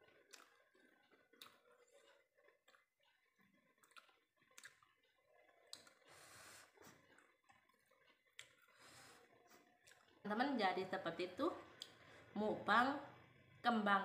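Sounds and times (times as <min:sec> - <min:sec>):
mouth clicks and lip smacks: 0:00.2 - 0:01.7, 0:03.7 - 0:06.1, 0:07.2 - 0:08.8.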